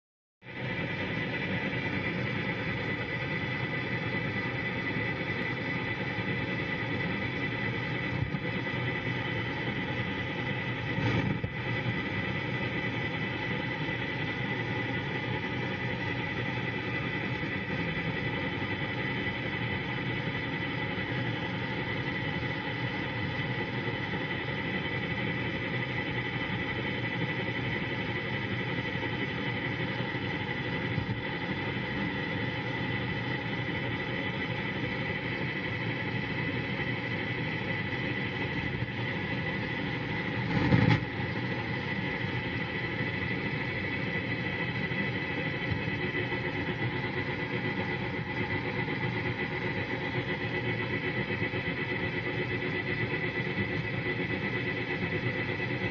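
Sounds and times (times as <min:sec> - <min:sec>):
radio static crackling: 0:06.3 - 0:12.9, 0:39.6 - 0:41.4.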